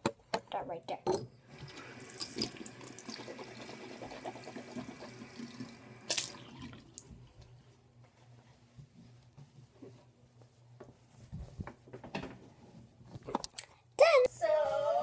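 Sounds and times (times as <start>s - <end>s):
tap water running into sink: 1.5s - 7.1s.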